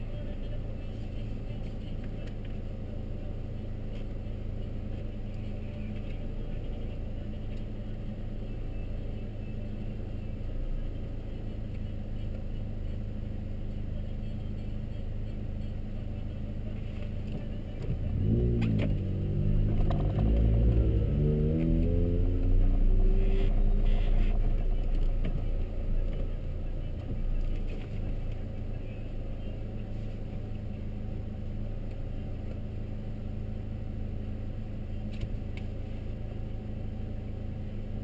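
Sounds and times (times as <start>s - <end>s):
car engine idling: 0.0s - 38.0s
car engine revving: 16.6s - 37.3s.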